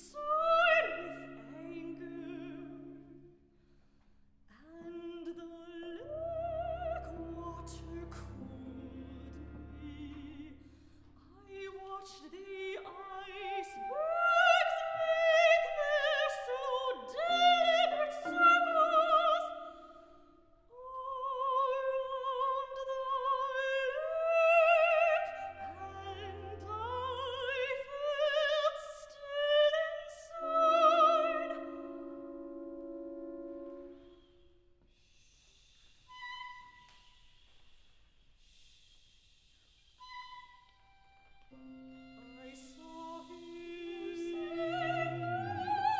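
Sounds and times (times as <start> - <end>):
woman singing opera: 0.0 - 3.3, 4.5 - 34.0, 41.9 - 45.9
strings and woodwinds: 5.9 - 19.9, 21.3 - 34.6, 40.0 - 45.9.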